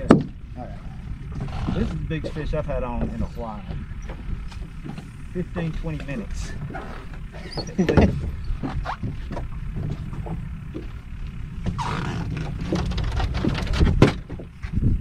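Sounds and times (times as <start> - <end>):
wind across microphone: 11.5 - 15.0.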